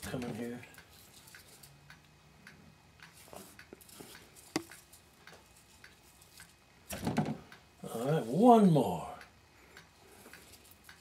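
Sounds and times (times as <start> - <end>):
netting needle clicks and rustles: 3.0 - 6.6.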